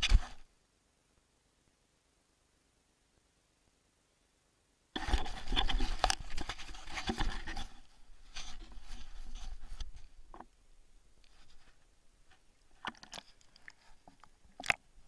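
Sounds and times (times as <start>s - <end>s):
camera handling scraping and rustling: 5.0s - 10.5s, 11.2s - 14.8s.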